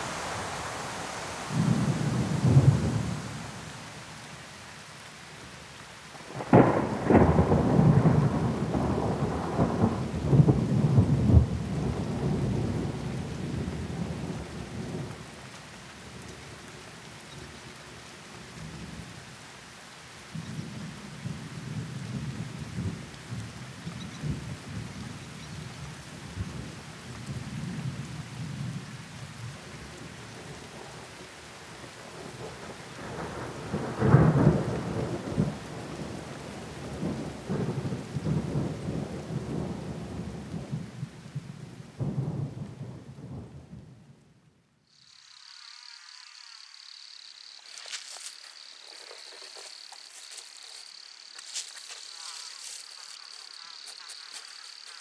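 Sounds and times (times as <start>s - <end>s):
thunder rumbling: 0.0s - 4.5s, 6.3s - 15.4s, 32.4s - 41.1s
steady rain: 0.0s - 55.0s.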